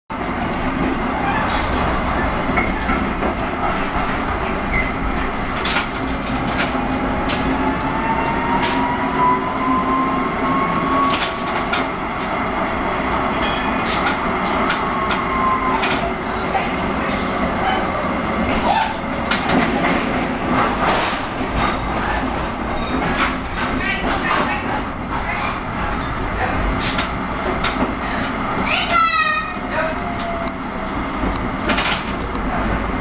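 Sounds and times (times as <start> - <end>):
tram rolling rumble: 0.1 - 33.0
wheels clicking on rail: 0.4 - 7.7.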